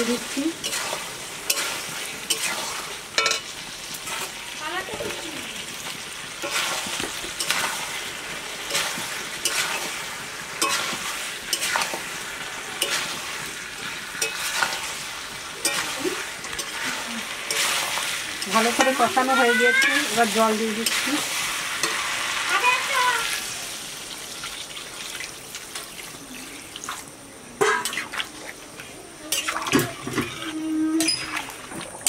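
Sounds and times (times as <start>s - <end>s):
meat sizzling in hot oil: 0.0s - 32.0s
metal spatula scraping pan: 0.1s - 4.3s, 6.4s - 8.0s, 10.6s - 12.1s, 15.6s - 22.2s, 29.3s - 31.4s.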